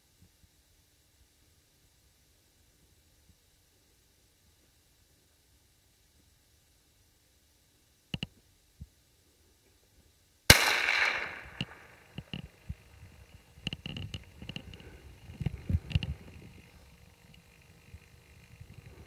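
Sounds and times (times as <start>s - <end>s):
gunshot with echo: 10.5s - 12.0s
faint clicks: 11.0s - 19.0s
small knocks and clicks: 13.3s - 16.2s.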